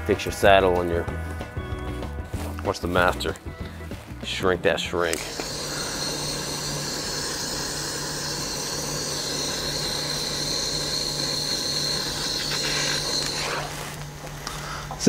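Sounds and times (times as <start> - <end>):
gas torch hissing: 5.1 - 15.0.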